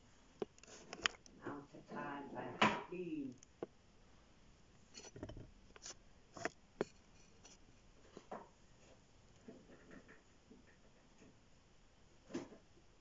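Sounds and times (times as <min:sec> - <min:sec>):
faint clicks and knocks: 0:00.4 - 0:01.4, 0:04.8 - 0:11.4.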